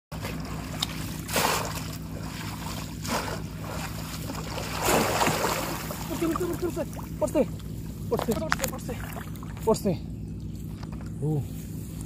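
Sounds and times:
basket trap splashing into water: 0.4 - 6.5.

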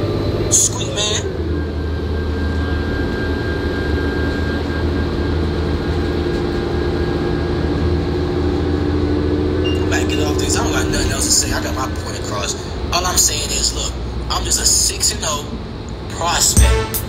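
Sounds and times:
low mechanical engine rumble: 0.0 - 16.7.

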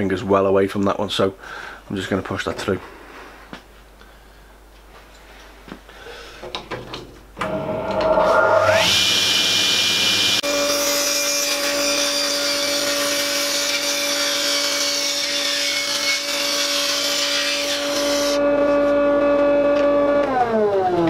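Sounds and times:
table saw motor hum: 7.4 - 12.9, 17.6 - 21.0
table saw blade cutting wood: 7.4 - 21.0.

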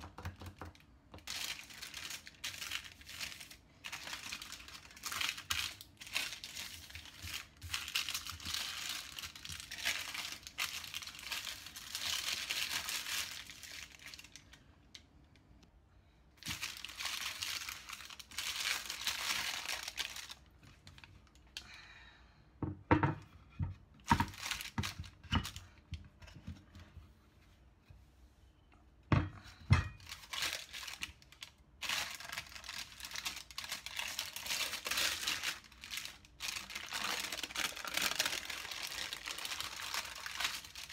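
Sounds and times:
baking paper rustling: 1.2 - 14.6, 16.4 - 21.4, 24.0 - 26.4, 29.6 - 40.9.

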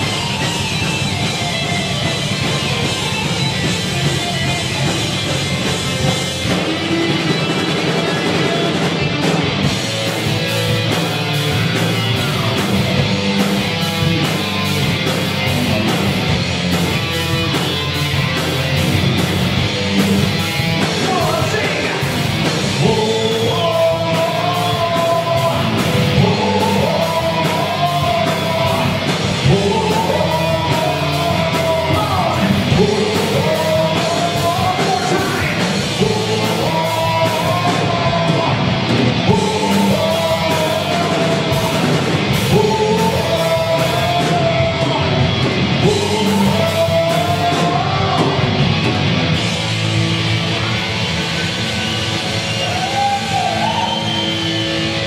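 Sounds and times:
rock band playing: 0.0 - 55.0
person singing: 21.0 - 48.6.

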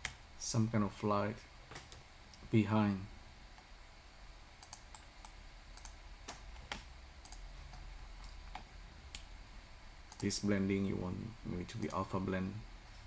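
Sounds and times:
keyboard clicks: 4.6 - 6.0, 6.7 - 7.4
computer mouse clicks: 4.6 - 7.5, 10.1 - 10.4.

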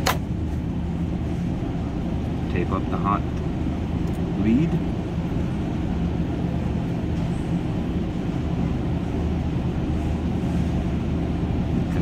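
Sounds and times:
machinery humming: 0.0 - 12.0.

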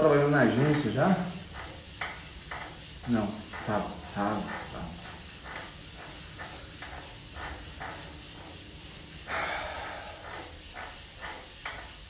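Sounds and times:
man breathing: 9.2 - 10.6.

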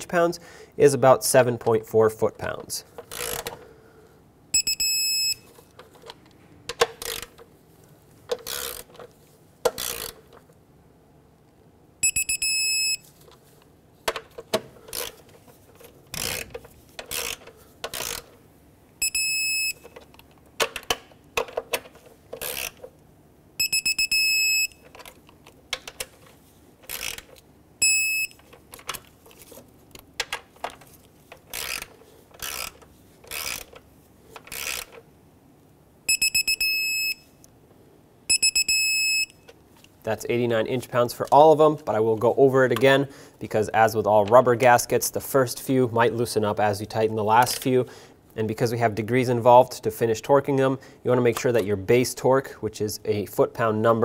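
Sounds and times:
torque wrench ratcheting: 3.1 - 3.5, 8.4 - 8.9, 9.7 - 10.2, 16.1 - 18.3, 22.4 - 22.8, 26.9 - 27.3, 31.5 - 33.7, 34.5 - 34.9
high steady beep: 4.5 - 5.5, 12.0 - 13.0, 19.0 - 19.8, 23.6 - 24.8, 27.8 - 28.4, 36.1 - 37.3, 38.3 - 39.4.

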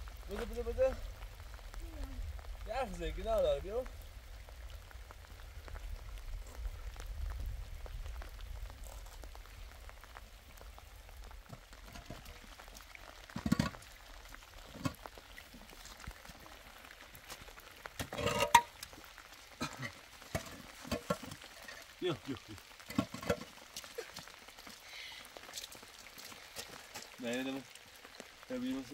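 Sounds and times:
wind rumble on microphone: 0.0 - 11.5
light rain pattering: 0.0 - 28.9
concrete blocks knocking and scraping: 13.3 - 13.8, 18.0 - 18.8, 19.7 - 21.5, 22.8 - 23.6.

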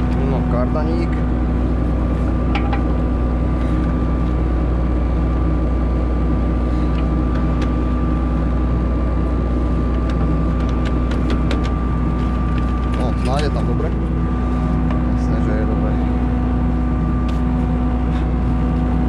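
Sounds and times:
diesel engine idling: 0.0 - 19.0
engine whine: 0.0 - 19.0.

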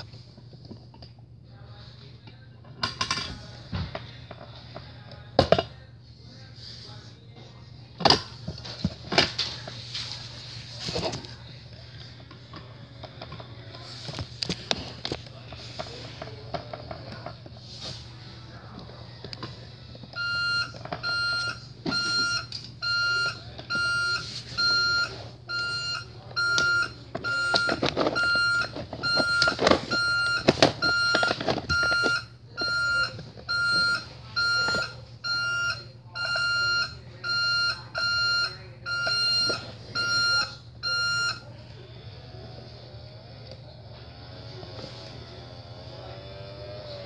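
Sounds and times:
toy reversing beeper: 20.2 - 41.5
plastic clattering: 26.4 - 33.8.

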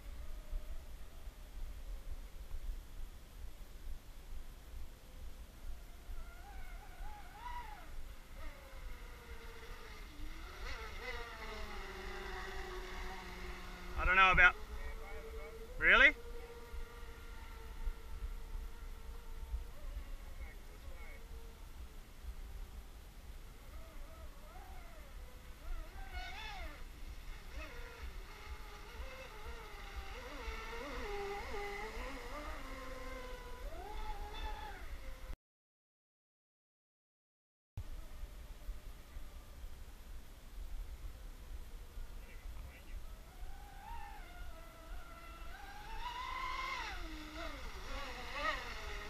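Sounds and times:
electric motor whine of rc boat: 0.0 - 2.1, 5.0 - 35.4, 43.0 - 49.0
wind rumble on microphone: 0.0 - 35.4.

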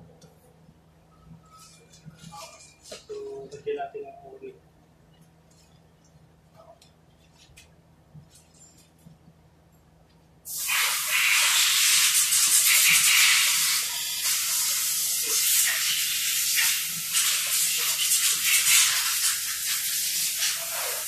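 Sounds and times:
pressurised gas hissing: 10.5 - 21.0.

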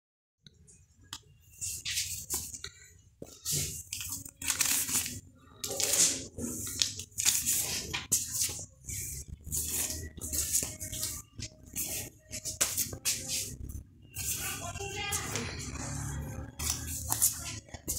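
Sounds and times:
plastic sleeves crinkling: 3.3 - 13.6.

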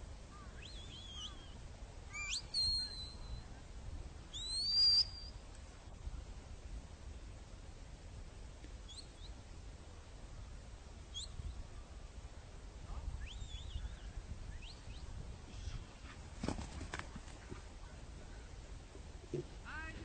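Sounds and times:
faint high bird chirps: 0.3 - 3.6, 4.3 - 5.4, 8.8 - 9.4, 11.1 - 11.9, 13.2 - 15.8.

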